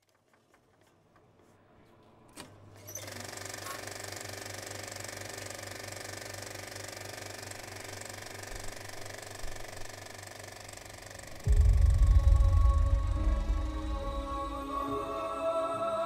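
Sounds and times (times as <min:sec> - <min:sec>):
small machine rattling: 0:02.8 - 0:11.3.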